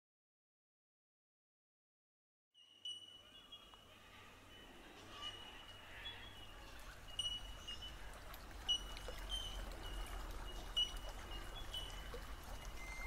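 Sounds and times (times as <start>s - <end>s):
creek trickling: 2.6s - 13.0s.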